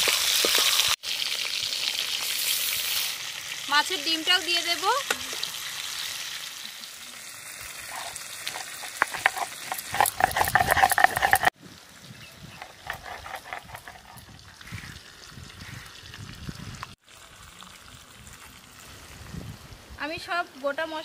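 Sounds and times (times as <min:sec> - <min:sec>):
fish sizzling in oil: 0:00.0 - 0:21.0
metal spatula scraping pan: 0:07.9 - 0:11.5, 0:12.6 - 0:14.9.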